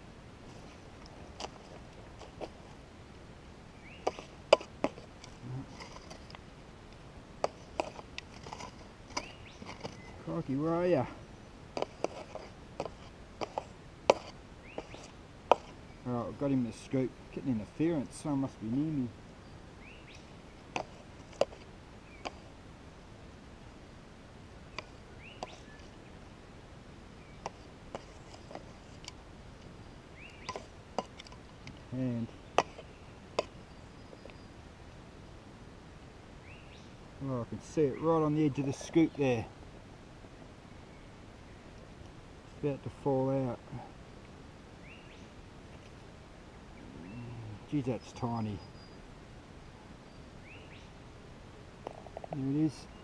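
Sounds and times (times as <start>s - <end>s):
scoop knocking and scraping soil: 4.0s - 6.4s, 7.4s - 11.1s, 11.8s - 15.8s, 20.7s - 22.5s, 24.8s - 25.9s, 27.4s - 29.2s, 30.3s - 33.6s
faint rising chirp: 46.5s - 51.0s.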